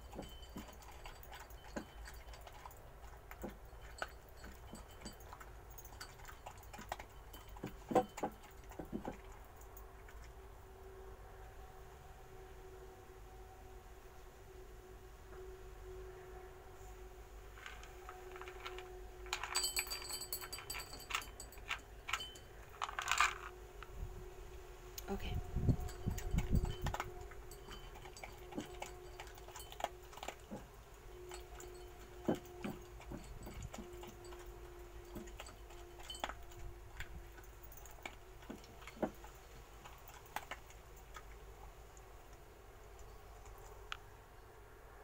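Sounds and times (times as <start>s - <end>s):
dry kibble clattering into bowl: 17.6s - 23.6s, 25.9s - 40.6s.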